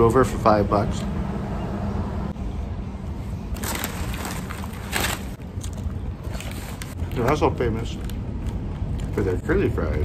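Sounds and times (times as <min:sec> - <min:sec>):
paper packaging crinkling: 0:03.5 - 0:09.4.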